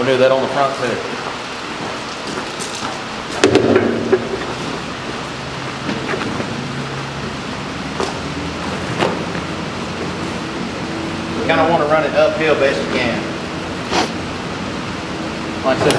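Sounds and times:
steady background hiss: 0.0 - 15.9.

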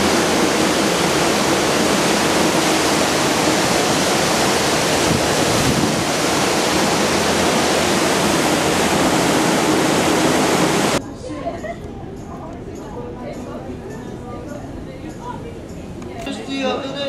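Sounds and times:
sea water rushing past ship: 0.0 - 11.0
wind rushing: 0.0 - 11.0.

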